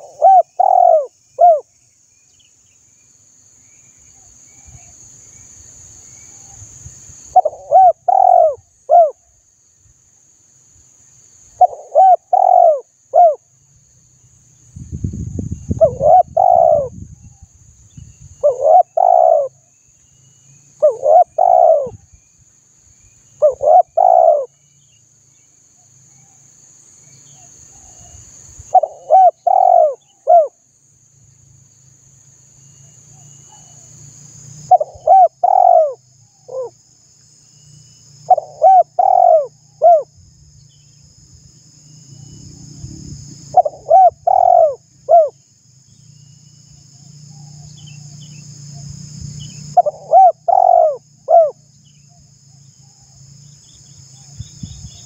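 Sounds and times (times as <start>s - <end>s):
dove cooing: 0.0s - 1.7s, 7.4s - 9.2s, 11.6s - 13.4s, 15.8s - 16.9s, 18.4s - 19.6s, 20.8s - 22.0s, 23.4s - 24.5s, 28.7s - 30.6s, 34.7s - 36.7s, 38.3s - 40.1s, 43.6s - 45.4s, 49.7s - 51.6s.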